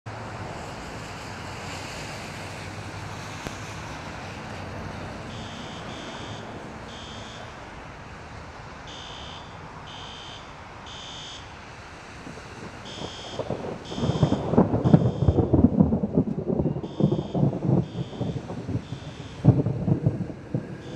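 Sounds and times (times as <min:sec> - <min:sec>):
steady rain: 0:00.1 - 0:20.9
high-pitched electronic alarm beeps: 0:05.3 - 0:07.5, 0:08.9 - 0:11.5, 0:12.9 - 0:15.5, 0:16.6 - 0:19.5
wind noise: 0:12.0 - 0:20.9.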